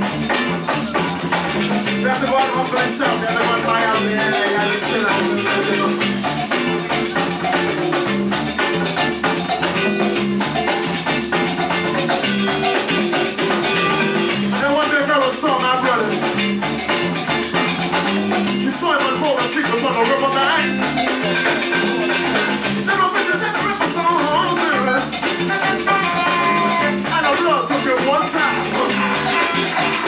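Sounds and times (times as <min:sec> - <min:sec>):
live band playing: 0:00.0 - 0:30.0
saxophone melody: 0:12.2 - 0:14.6, 0:20.6 - 0:22.9, 0:24.7 - 0:27.2, 0:28.2 - 0:30.0.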